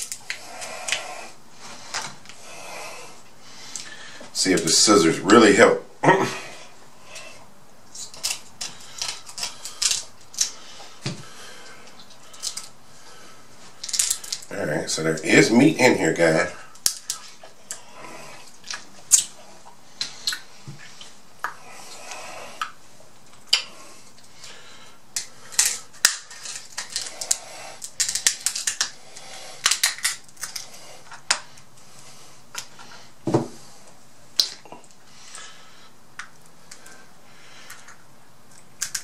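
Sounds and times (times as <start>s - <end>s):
shells cracking and snapping: 0.0s - 1.1s, 7.9s - 12.8s, 13.8s - 14.5s, 16.7s - 17.8s, 18.4s - 19.4s, 20.0s - 20.5s, 25.2s - 31.7s, 36.2s - 37.0s, 37.6s - 39.0s
scissors snipping crab shells: 38.8s - 39.0s.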